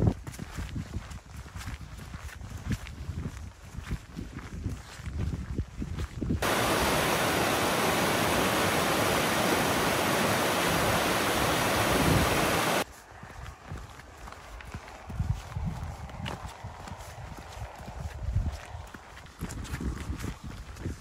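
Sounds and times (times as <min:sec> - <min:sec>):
footsteps on dirt trail: 0:00.0 - 0:21.0
stream rushing over rocks: 0:06.4 - 0:12.8.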